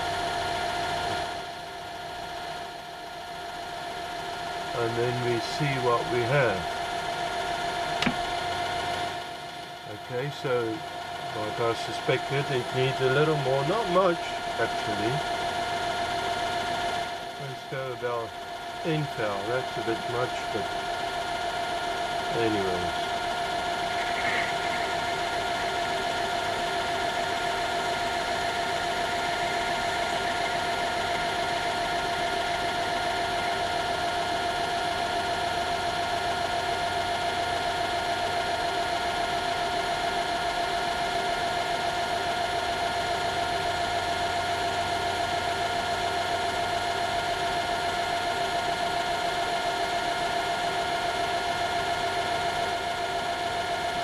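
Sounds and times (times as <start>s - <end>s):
metal lathe whining: 18.6s - 36.4s.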